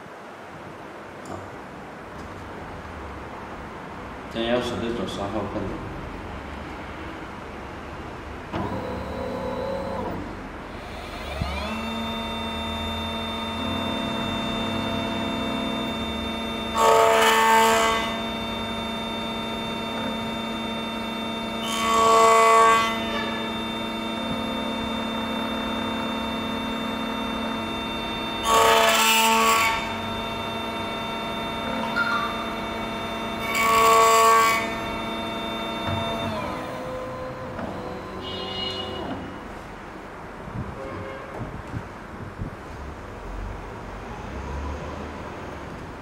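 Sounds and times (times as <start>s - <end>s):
key cutting machine motor whine: 8.5s - 39.5s.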